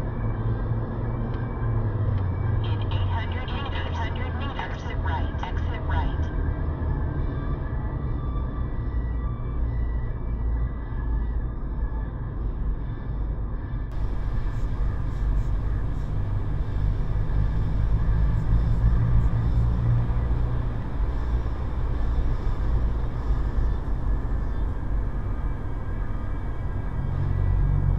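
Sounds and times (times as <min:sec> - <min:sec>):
car engine and road rumble: 0:00.1 - 0:07.3, 0:13.9 - 0:27.9.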